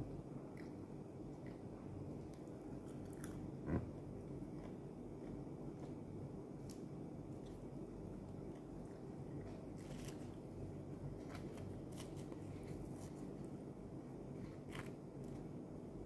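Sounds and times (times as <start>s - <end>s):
low steady hum: 0.0s - 16.0s
flatbread tearing crackles: 9.7s - 10.5s, 11.1s - 13.4s.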